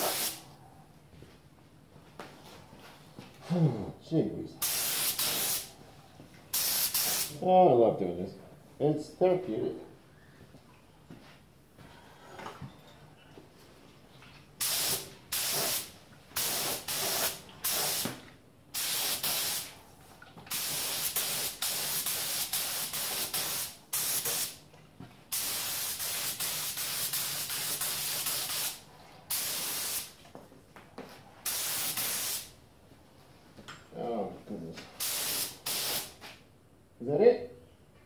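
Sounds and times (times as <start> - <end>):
paint spray gun hissing: 0.0 - 0.4, 4.6 - 5.7, 6.6 - 7.3, 14.6 - 18.1, 18.8 - 19.7, 20.5 - 24.5, 25.3 - 30.1, 31.5 - 32.5, 35.0 - 36.1.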